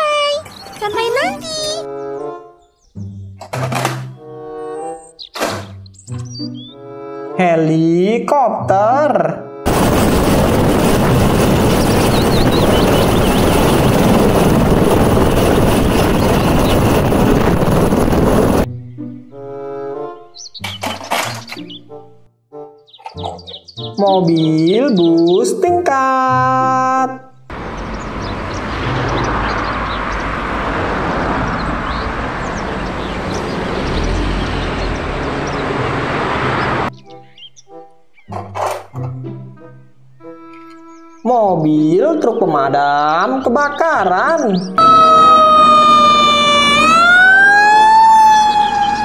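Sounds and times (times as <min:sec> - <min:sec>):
birds chirping: 0:00.0 - 0:07.8, 0:11.4 - 0:25.8, 0:27.2 - 0:49.0
helicopter turbine and rotor roar: 0:09.7 - 0:18.7
bus driving past: 0:27.5 - 0:37.0, 0:44.8 - 0:49.0.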